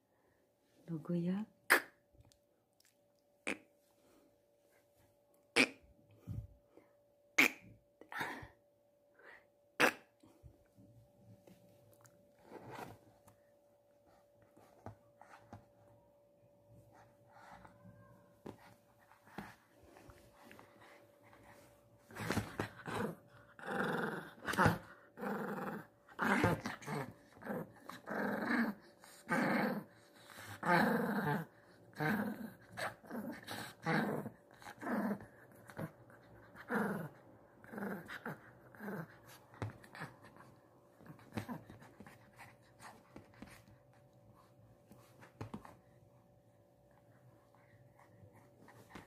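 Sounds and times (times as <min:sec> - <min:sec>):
small dog growling: 0:22.1 - 0:43.4.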